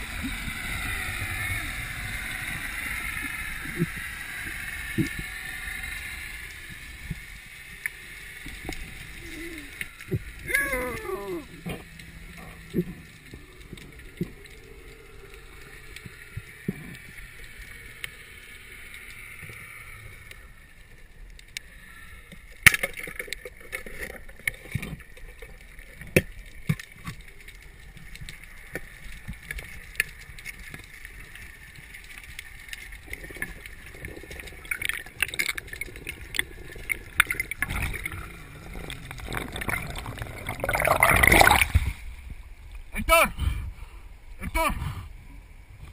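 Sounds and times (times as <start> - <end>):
underwater water hiss: 0.0 - 10.4, 11.2 - 22.6.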